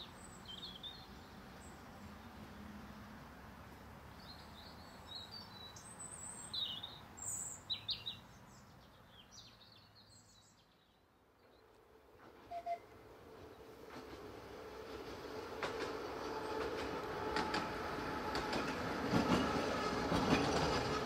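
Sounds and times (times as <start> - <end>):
small birds chirping: 0.0 - 2.7, 4.1 - 11.8.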